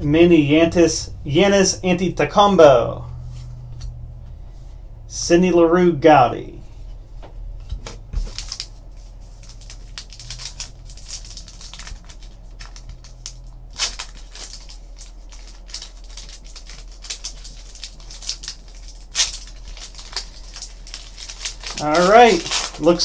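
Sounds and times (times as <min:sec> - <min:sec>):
wrapper crinkling and tearing: 0:08.2 - 0:23.0.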